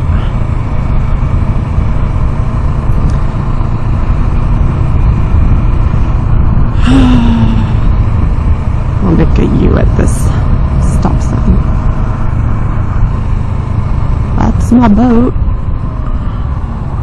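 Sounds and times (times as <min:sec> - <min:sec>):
motorcycle engine cruising: 0:00.0 - 0:17.0
wind rush on microphone: 0:00.0 - 0:17.0.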